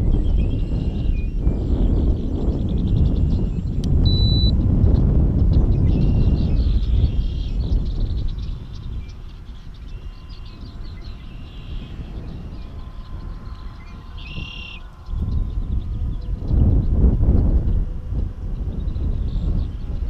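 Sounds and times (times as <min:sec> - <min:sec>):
wind buffeting microphone: 0:00.0 - 0:20.0
birds trilling: 0:05.0 - 0:20.0.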